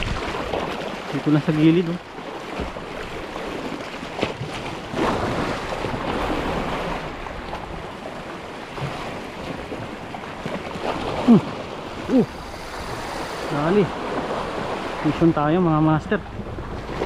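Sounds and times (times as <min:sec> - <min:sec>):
wind on microphone: 0:00.0 - 0:00.8, 0:10.8 - 0:15.2
sea waves washing on shore: 0:00.0 - 0:17.0.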